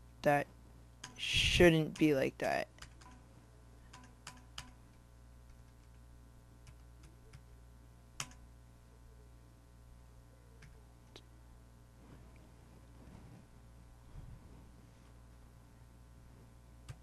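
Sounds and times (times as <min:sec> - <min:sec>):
low electrical hum: 0:00.0 - 0:17.0
computer keys clicking: 0:01.0 - 0:01.2, 0:02.8 - 0:03.2, 0:03.9 - 0:06.0, 0:06.6 - 0:07.5, 0:08.2 - 0:08.4.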